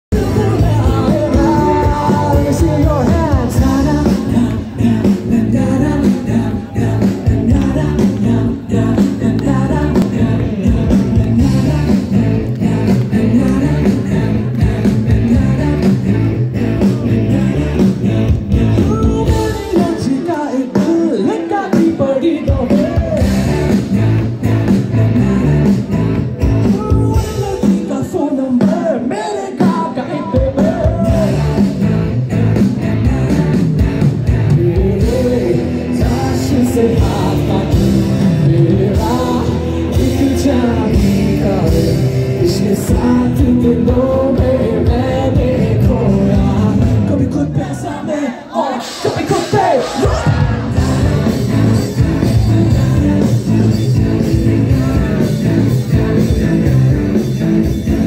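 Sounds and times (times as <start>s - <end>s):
live band playing: 0.1s - 48.0s, 48.7s - 58.0s
lead singer singing: 0.1s - 58.0s.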